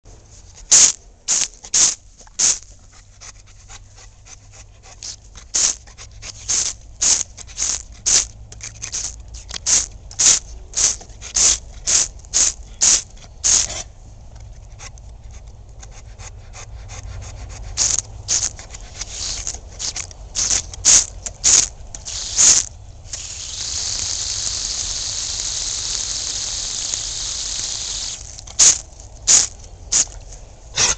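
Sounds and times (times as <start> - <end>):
hose water hissing: 20.4 - 30.1.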